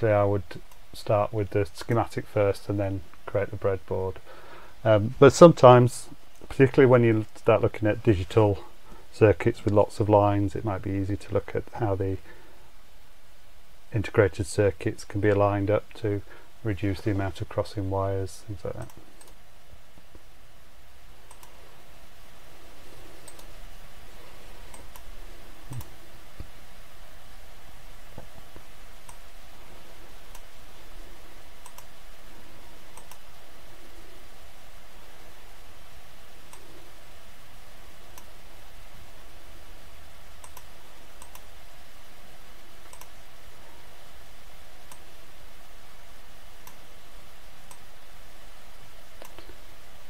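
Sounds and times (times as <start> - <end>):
background hiss: 0.0 - 50.0
low background hum: 0.0 - 50.0
computer mouse clicking: 18.8 - 19.4, 21.3 - 21.6, 23.2 - 23.6, 25.7 - 25.9, 31.6 - 31.9, 32.9 - 33.2, 40.4 - 41.5, 42.8 - 43.2, 46.6 - 46.8, 49.2 - 49.6.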